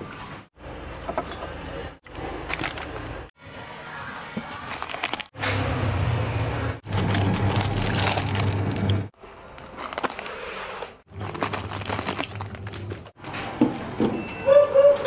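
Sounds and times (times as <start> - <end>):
plastic packets crinkling: 2.4 - 3.2, 4.7 - 5.4, 6.8 - 13.1.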